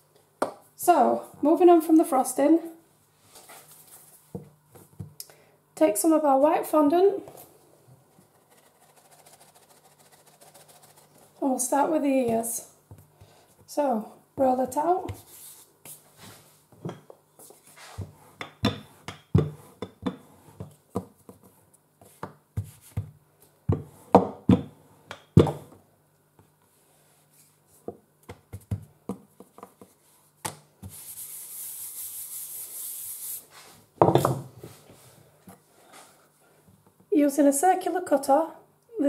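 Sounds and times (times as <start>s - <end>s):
rolling pin rubbing on worktop: 8.1s - 11.4s, 15.0s - 16.6s, 17.4s - 23.1s, 30.8s - 35.0s
steady hiss: 30.9s - 33.9s.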